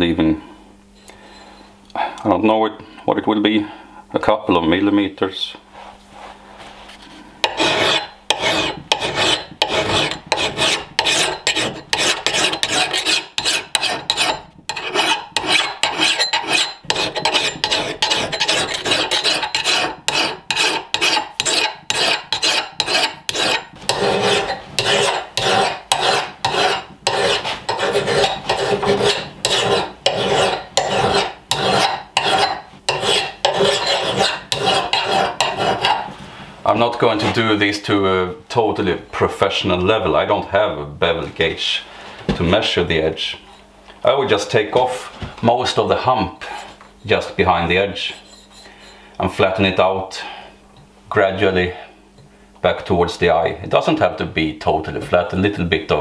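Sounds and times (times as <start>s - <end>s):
file rasping on steel: 7.4s - 36.1s, 48.0s - 49.0s.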